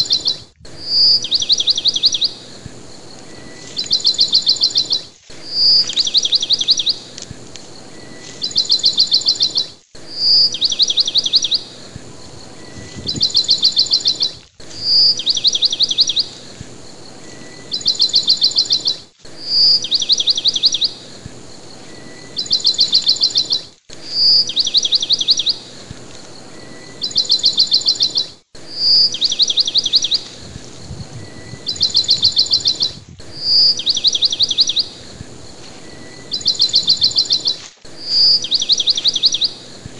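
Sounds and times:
bird chirping trills: 0:00.0 - 0:39.9.

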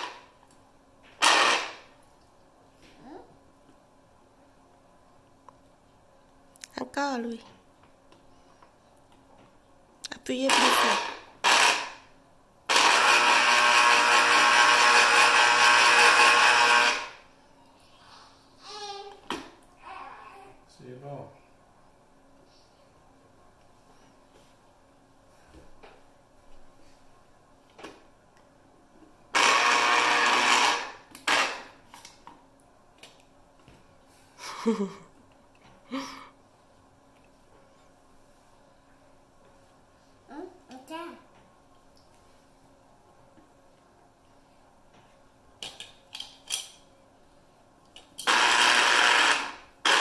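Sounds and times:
electric juicer motor running: 0:01.2 - 0:01.8, 0:10.5 - 0:12.0, 0:12.7 - 0:17.2, 0:29.3 - 0:31.7, 0:48.2 - 0:50.0.

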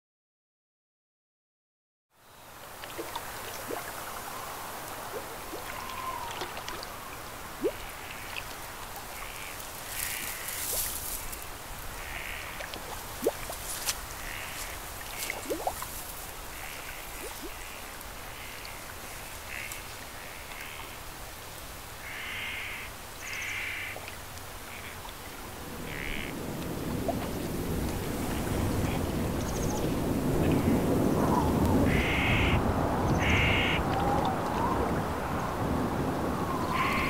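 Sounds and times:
steady hiss: 0:02.3 - 0:32.5
crows cawing: 0:09.2 - 0:11.4, 0:12.0 - 0:12.6, 0:14.1 - 0:14.8, 0:22.0 - 0:24.0, 0:25.9 - 0:26.4, 0:31.9 - 0:34.1, 0:36.7 - 0:37.0.

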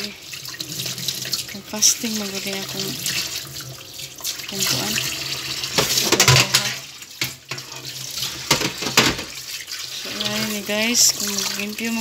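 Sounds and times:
tap water running into sink: 0:00.0 - 0:12.0
water splashing in bowl: 0:00.0 - 0:12.0.

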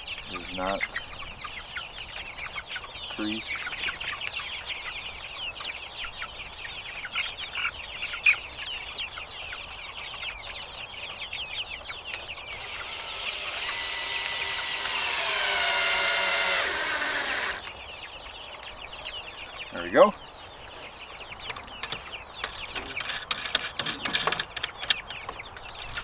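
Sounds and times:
cordless drill driving screw: 0:12.6 - 0:17.7.

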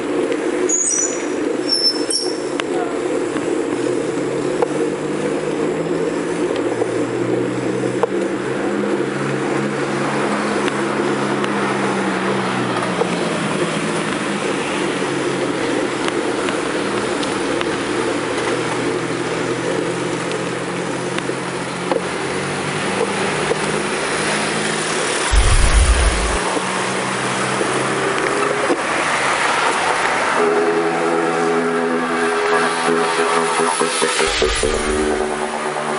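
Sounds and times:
road and wind noise: 0:00.0 - 0:30.4, 0:32.5 - 0:35.9
vehicle engine hum: 0:21.6 - 0:26.4.

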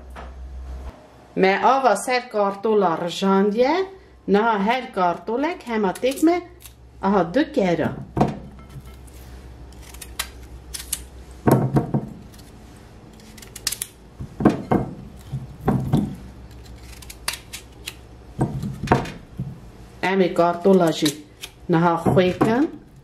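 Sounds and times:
knife slicing raw potatoes: 0:08.8 - 0:11.2, 0:11.8 - 0:18.8.

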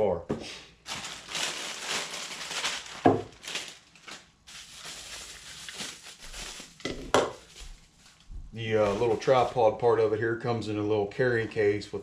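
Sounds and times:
plastic wrapping crinkling: 0:00.8 - 0:09.6.

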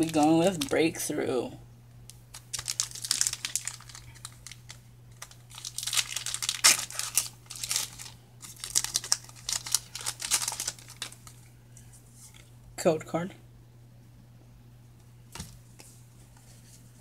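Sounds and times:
foil wrapper tearing and crinkling: 0:00.0 - 0:00.9, 0:02.2 - 0:11.4.

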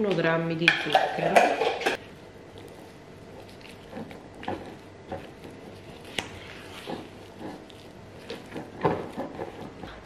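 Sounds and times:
spatula stirring thick cream: 0:02.5 - 0:10.0.

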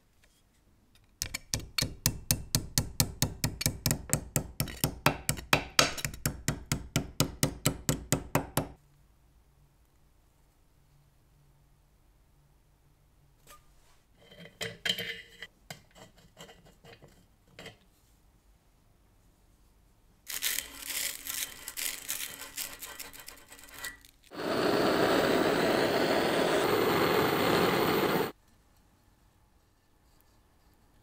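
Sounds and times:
tube scrubbed with abrasive: 0:20.3 - 0:28.4
blowtorch hissing: 0:24.3 - 0:28.4.

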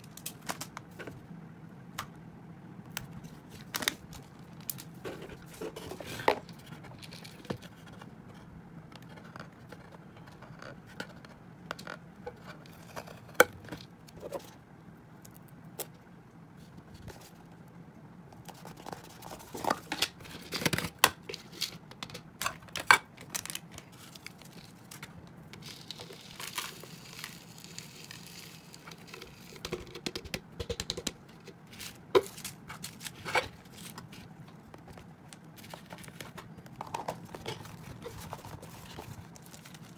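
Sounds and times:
plastic containers clicking and knocking: 0:29.6 - 0:31.5.

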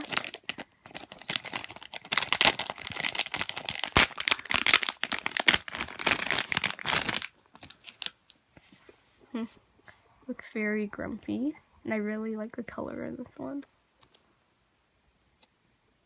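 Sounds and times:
plastic bag crinkling: 0:00.0 - 0:08.2.

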